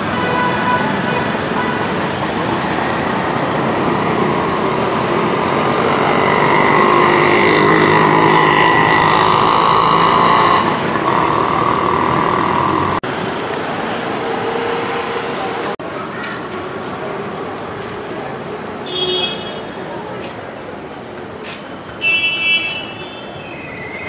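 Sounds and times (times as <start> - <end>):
motorcycle engines passing: 0.0 - 15.8
loud vehicle passing close: 1.4 - 15.8.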